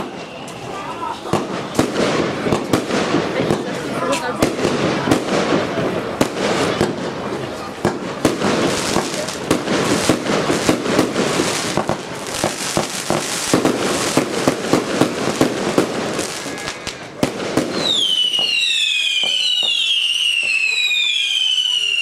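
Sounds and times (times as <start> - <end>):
falling firework whistles: 0.0 - 1.6, 8.3 - 22.0
fireworks bangs and crackling: 0.0 - 22.0.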